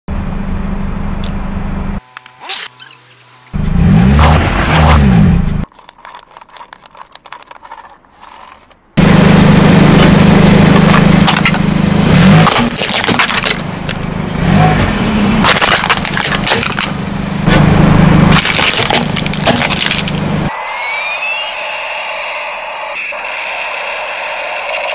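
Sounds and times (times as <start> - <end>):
loud low drone: 9.0 - 15.4
plastic toy cracking under tyre: 12.4 - 13.7, 15.4 - 16.9, 18.3 - 20.2.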